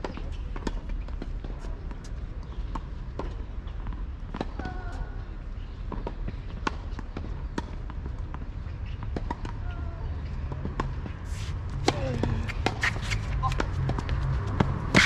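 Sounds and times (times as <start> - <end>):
tennis ball bouncing: 5.9 - 9.6, 11.7 - 15.0
steady low rumble: 10.5 - 15.0
rackets hitting tennis ball: 10.7 - 15.0.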